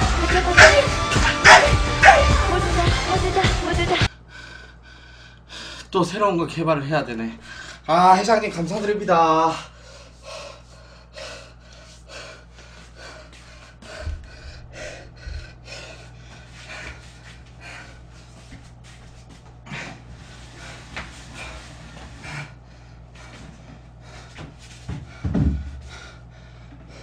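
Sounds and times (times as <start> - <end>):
man breathing heavily: 4.0 - 5.9, 7.4 - 7.9, 9.4 - 27.0.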